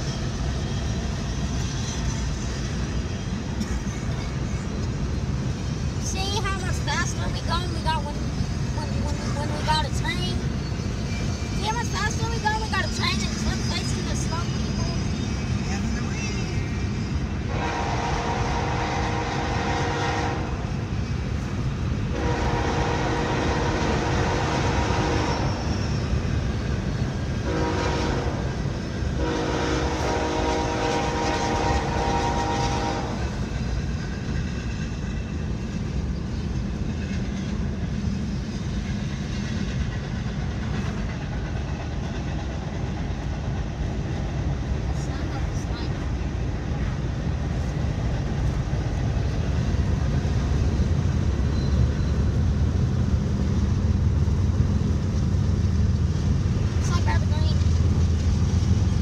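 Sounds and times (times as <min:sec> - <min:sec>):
locomotive air horn blasts: 0:17.5 - 0:20.6, 0:22.1 - 0:25.6, 0:27.4 - 0:28.5, 0:29.2 - 0:33.2.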